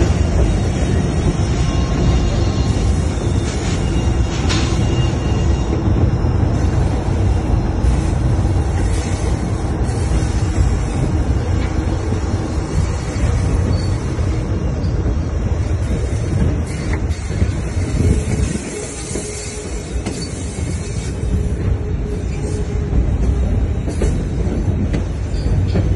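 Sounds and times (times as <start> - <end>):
train wheels rumbling on rails: 0.0 - 25.9.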